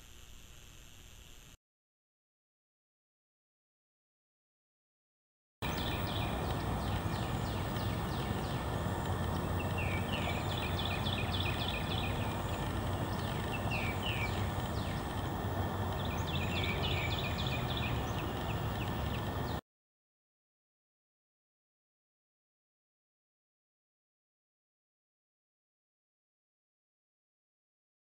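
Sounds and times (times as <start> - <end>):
low hum: 5.6 - 19.6
steady background noise: 5.6 - 19.6.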